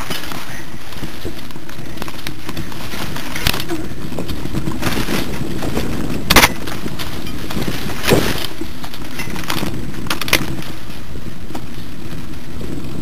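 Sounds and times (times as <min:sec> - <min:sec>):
bike knocking over bumps: 0:00.0 - 0:12.3
bike tyres rumbling and rattling: 0:00.0 - 0:13.0.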